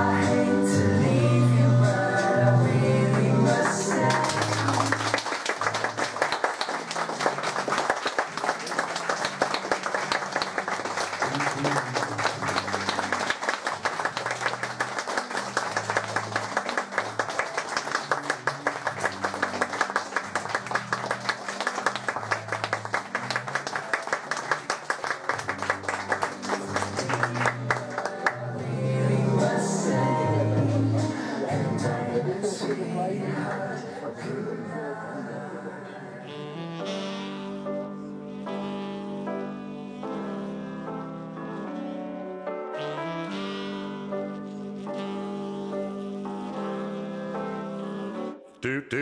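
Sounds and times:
audience applauding: 0:03.1 - 0:28.6.

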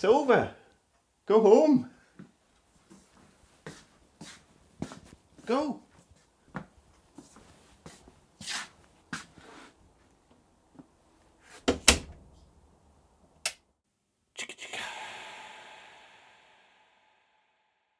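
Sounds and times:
footsteps on floor: 0:02.2 - 0:09.6
door shutting with heavy thud: 0:11.7 - 0:12.2.

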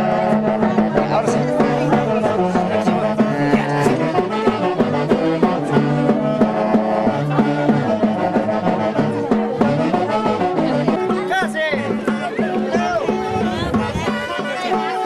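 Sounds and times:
brass band playing: 0:00.0 - 0:15.0.

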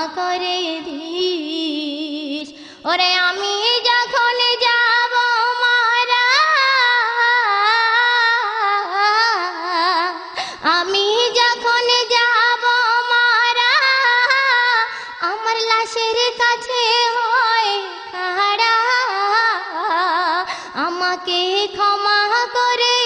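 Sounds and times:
woman singing devotional song: 0:00.0 - 0:23.0.

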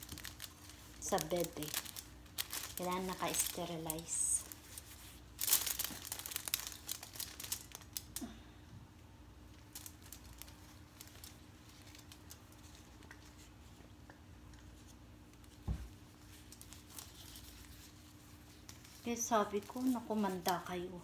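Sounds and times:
plastic and gauze rustling: 0:00.0 - 0:08.2, 0:09.4 - 0:14.0, 0:14.6 - 0:21.0
small crackles: 0:00.0 - 0:08.4, 0:09.4 - 0:21.0
faint steady hum: 0:00.0 - 0:21.0
soft thump: 0:15.6 - 0:15.9.

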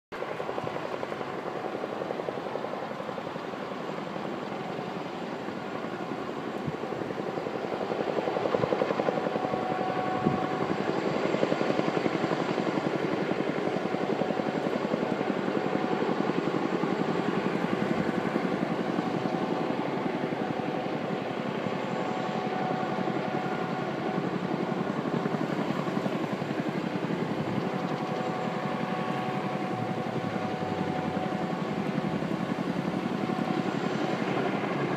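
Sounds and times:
helicopter rotor and turbine noise: 0:00.1 - 0:34.9.

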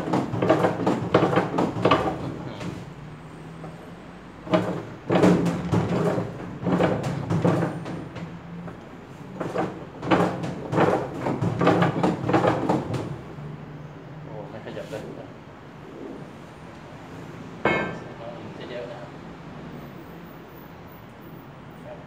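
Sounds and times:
socket wrench clanking on metal: 0:17.6 - 0:18.2.

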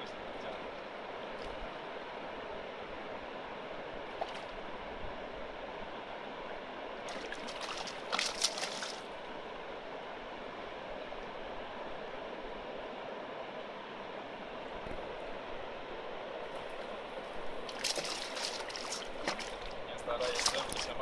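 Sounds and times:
river water rushing: 0:00.0 - 0:21.0
fish thrashing and splashing: 0:07.1 - 0:09.1, 0:17.6 - 0:21.0.

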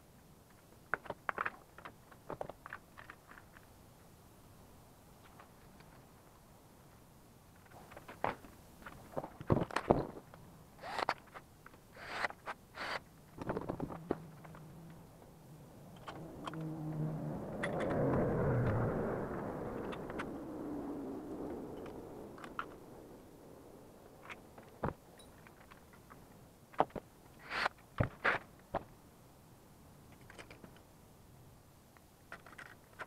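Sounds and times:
vehicle passing by: 0:14.0 - 0:24.6.

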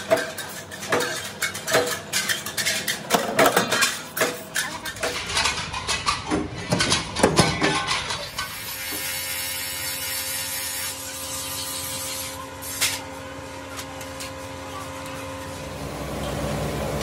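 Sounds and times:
blade grinding hiss: 0:08.4 - 0:13.1.

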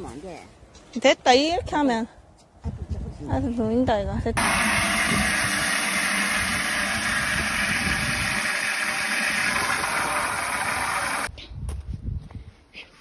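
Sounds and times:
hose spraying water into can: 0:04.4 - 0:11.3.

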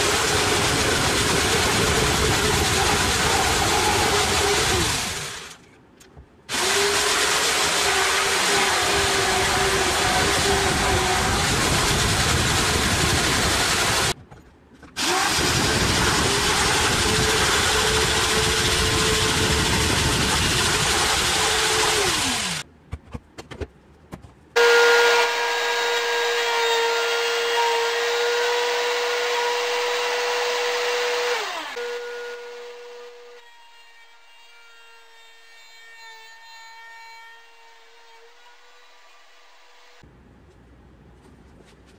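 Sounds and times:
electric jigsaw cutting board: 0:00.0 - 0:05.6, 0:06.5 - 0:14.2, 0:15.0 - 0:22.6, 0:24.6 - 0:33.4
power tool whining: 0:00.0 - 0:05.6, 0:06.5 - 0:14.2, 0:15.0 - 0:22.6, 0:24.6 - 0:40.0.

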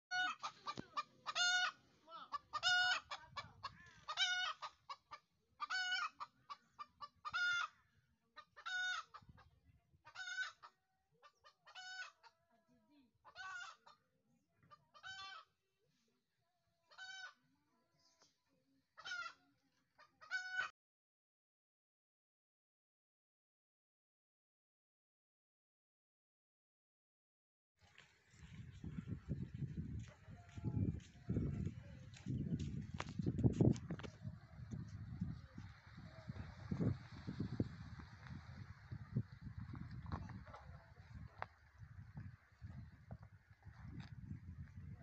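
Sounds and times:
chicken calling: 0:00.1 - 0:04.9, 0:05.6 - 0:07.8, 0:13.3 - 0:13.9.

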